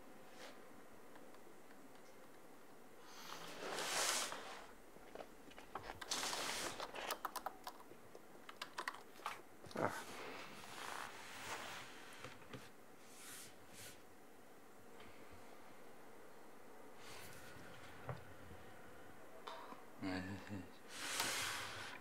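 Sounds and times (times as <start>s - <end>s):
keyboard typing: 6.9s - 9.4s.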